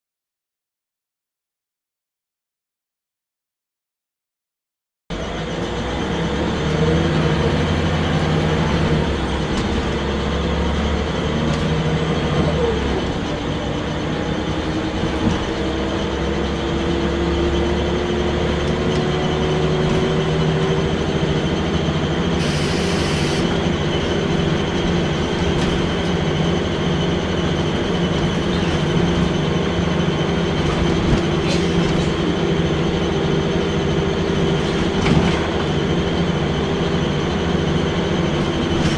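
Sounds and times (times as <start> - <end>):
bus engine running: 5.1 - 38.9
brief high hiss: 22.4 - 23.5.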